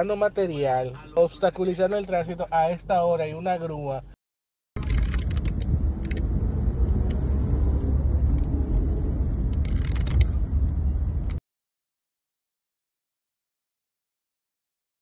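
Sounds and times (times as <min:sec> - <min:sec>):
car rumble inside cabin: 0:04.8 - 0:11.4.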